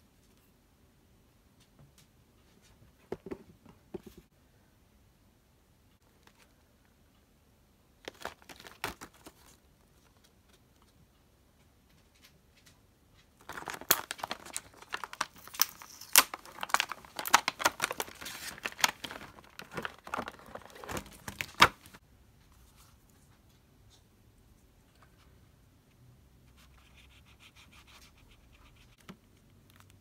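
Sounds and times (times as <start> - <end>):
plastic packaging crinkling: 8.1 - 9.6, 13.4 - 22.0.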